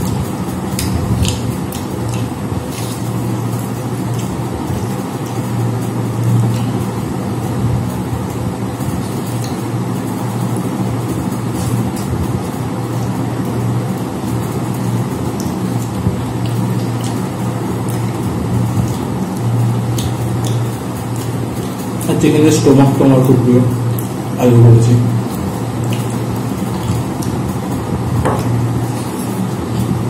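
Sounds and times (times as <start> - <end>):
eating clicks on metal plates: 0.0 - 7.0.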